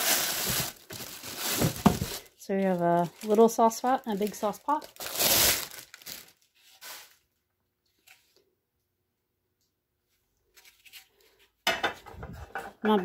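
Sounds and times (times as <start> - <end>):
cardboard rustling: 0.0 - 7.2.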